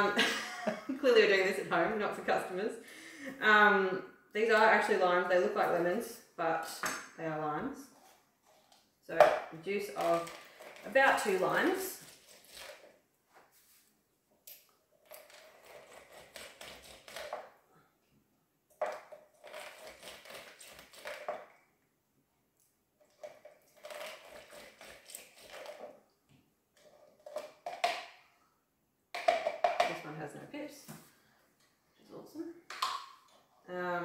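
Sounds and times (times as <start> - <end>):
citrus squeezed on plastic reamer: 14.5 - 17.4, 18.9 - 21.5, 23.1 - 26.0.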